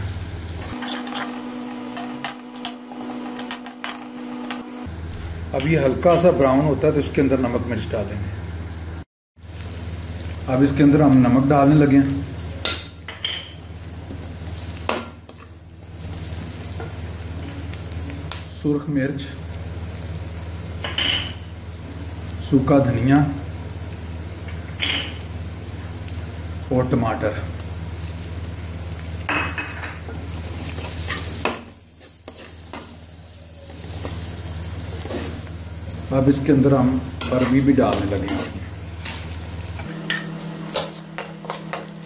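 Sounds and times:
onions sizzling in oil: 0.0 - 5.5, 8.5 - 42.0
metal spatula scraping a pan: 0.7 - 4.0, 30.7 - 33.0.

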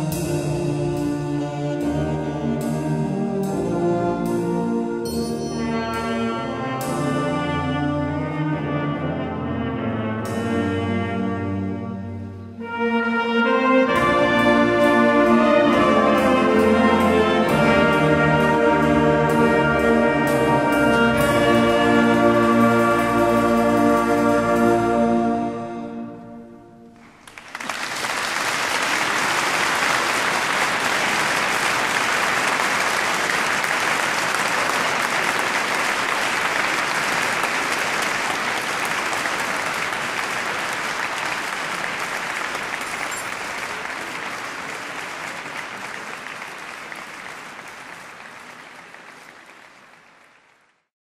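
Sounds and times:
audience applauding: 27.0 - 50.9.

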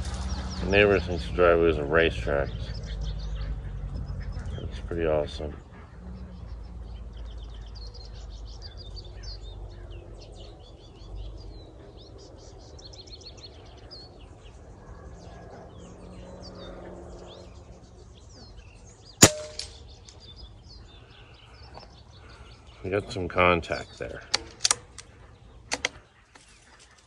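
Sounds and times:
birds chirping: 0.0 - 27.0
rifle shot: 19.2 - 19.8
bullet striking target: 19.2 - 19.9.

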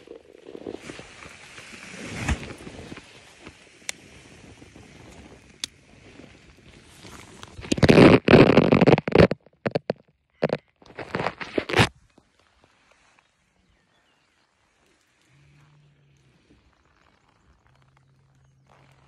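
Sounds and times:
phone microphone handling rustle: 0.1 - 12.2
phone scraping against fabric: 7.0 - 11.9.

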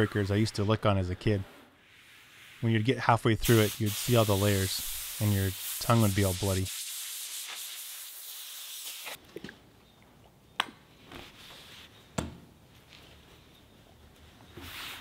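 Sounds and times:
air blow gun hissing: 3.4 - 9.2.

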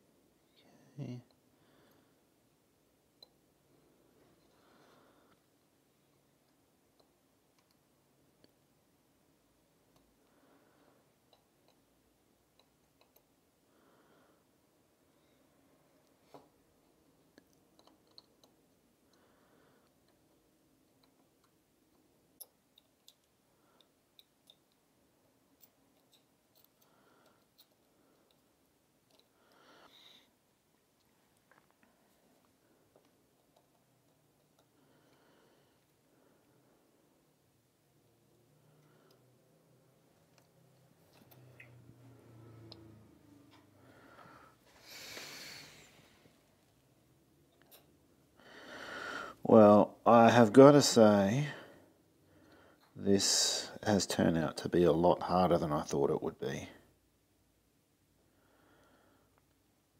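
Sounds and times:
soft hiss: 0.0 - 59.9
small metal clicks: 17.4 - 18.6.

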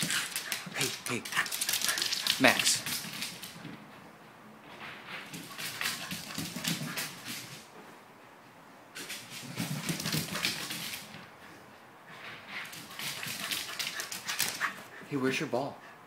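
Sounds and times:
dog claws clicking on wooden floor: 0.0 - 3.6, 12.7 - 14.7.

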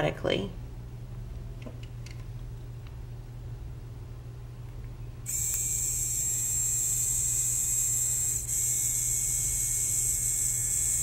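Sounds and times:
small electric motor whining: 5.3 - 11.0.

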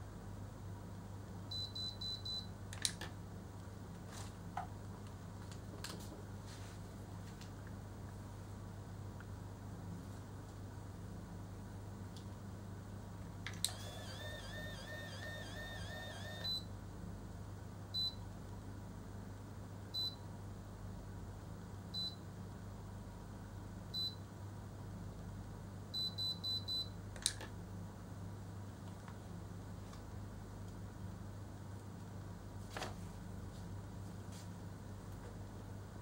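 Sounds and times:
curling iron motor whirring: 13.7 - 16.4
curling iron beeps: 13.7 - 16.6.

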